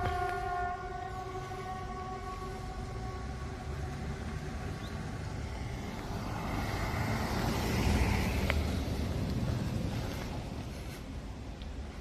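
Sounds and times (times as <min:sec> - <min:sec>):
warning siren tone: 0:00.0 - 0:05.6
car passing with rumble: 0:00.0 - 0:12.0.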